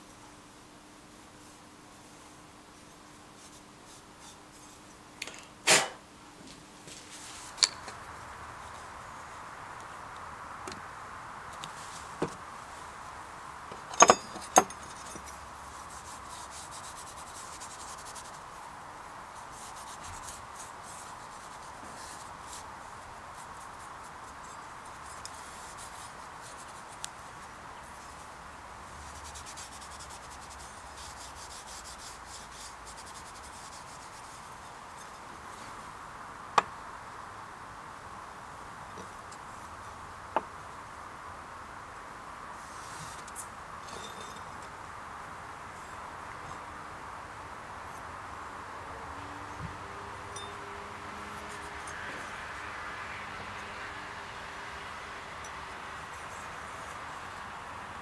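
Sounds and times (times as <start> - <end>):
background hiss: 0.0 - 58.0.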